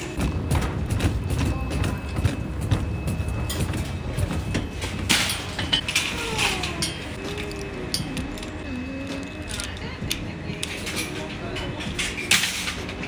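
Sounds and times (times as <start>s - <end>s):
shopping trolleys rattling: 0.0s - 13.0s.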